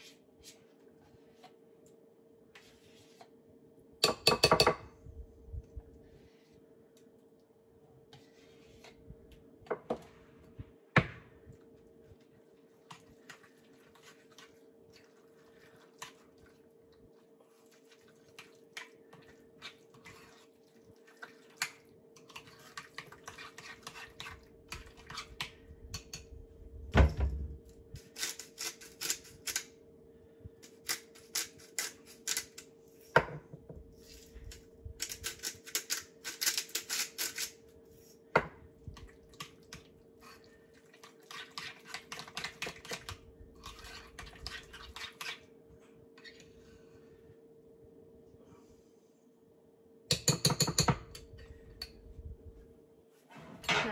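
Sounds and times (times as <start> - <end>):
faint steady hum: 0.0 - 53.9
spoon stirring in bowl: 11.7 - 26.4, 33.9 - 45.5, 50.1 - 52.2
spoon scraping plastic tub: 22.2 - 26.1, 41.0 - 45.4.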